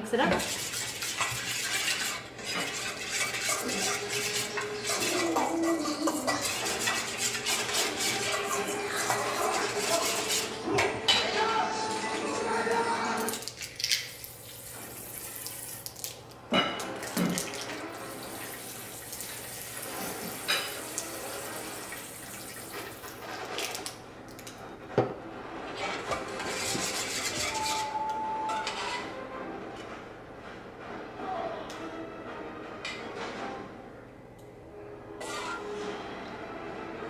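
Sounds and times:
spoon stirring in steel bowl: 0.2s - 11.4s, 25.8s - 29.1s.

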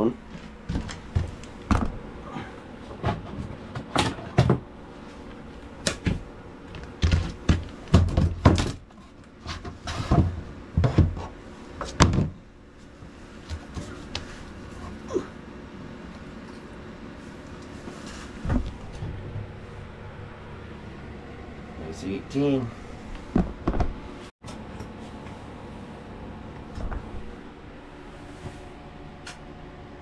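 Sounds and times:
knocks and thumps: 0.6s - 2.0s, 7.0s - 8.8s, 18.4s - 19.6s, 23.3s - 24.0s.

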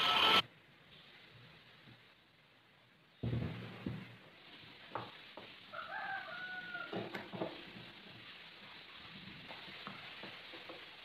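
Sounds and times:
rooster crowing: 5.7s - 7.2s.

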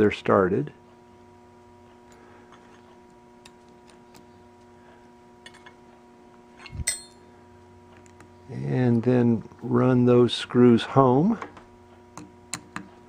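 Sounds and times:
faint steady hum: 0.0s - 13.0s
sharp metallic clink: 6.8s - 7.2s.

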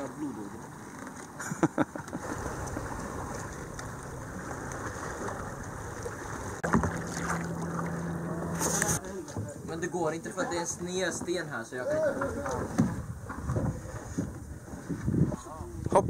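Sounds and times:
water splashing along kayak hull: 0.0s - 11.4s, 12.0s - 15.3s
steady low hum: 2.2s - 9.9s.

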